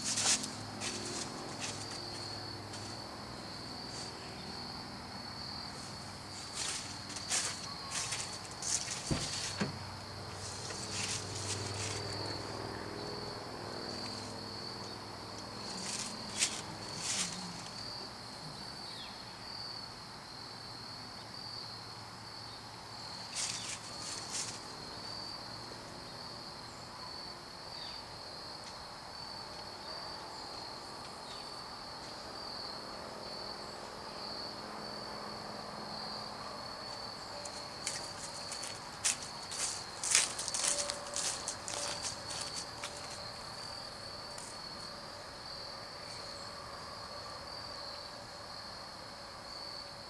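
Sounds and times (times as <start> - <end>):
footsteps in dry leaves: 0.0 - 4.6, 5.4 - 9.6, 10.2 - 12.4, 15.6 - 18.0, 23.2 - 24.8, 37.4 - 44.8
insects trilling: 0.0 - 50.0.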